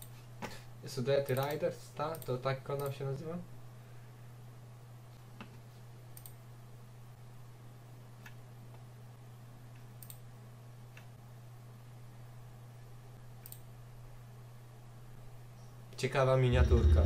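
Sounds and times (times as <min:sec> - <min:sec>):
steady low hum: 0:00.0 - 0:17.0
computer mouse clicking: 0:01.2 - 0:03.0, 0:05.4 - 0:06.4, 0:09.7 - 0:10.3, 0:10.9 - 0:11.1, 0:13.4 - 0:13.7.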